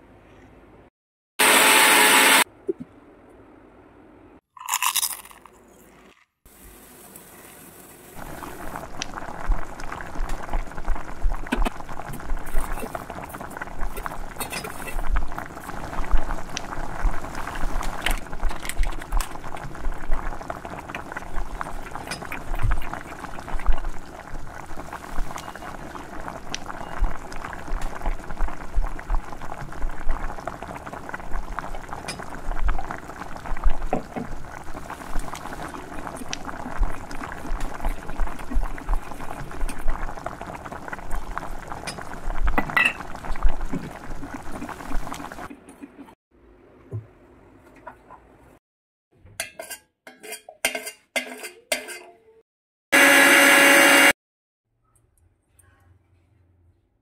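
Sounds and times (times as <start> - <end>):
milk bubbling in pot: 8.2 - 45.6
spoon clinking against pot: 49.4 - 52.2.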